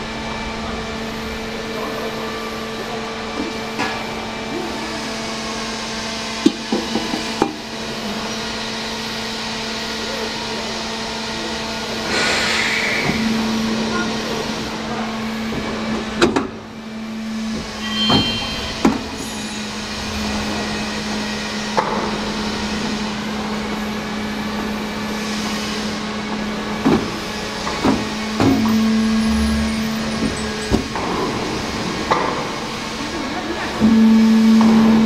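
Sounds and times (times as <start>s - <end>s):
factory noise: 0.0s - 35.0s
steady machine hum: 10.8s - 35.0s
sharp metal clanks and knocks: 17.8s - 19.6s.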